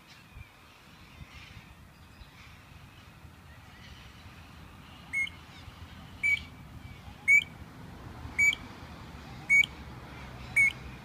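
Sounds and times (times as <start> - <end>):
bird piping call: 0.0 - 7.6, 8.4 - 11.0.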